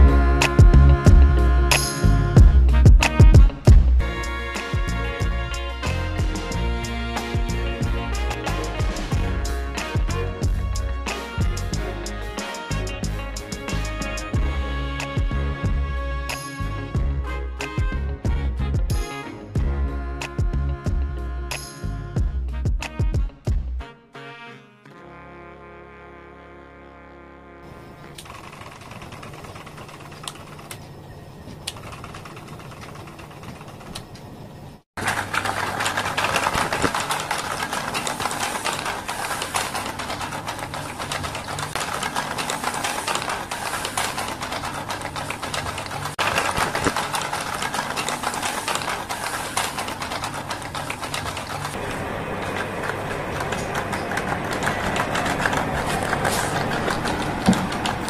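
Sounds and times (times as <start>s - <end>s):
clicking and rattling parts: 28.2s - 34.4s, 35.0s - 58.0s
small toy motor running: 35.2s - 51.8s.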